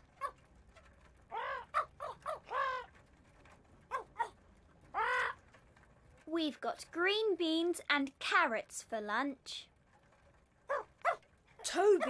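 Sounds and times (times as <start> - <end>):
parrot squawking: 1.3 - 2.9.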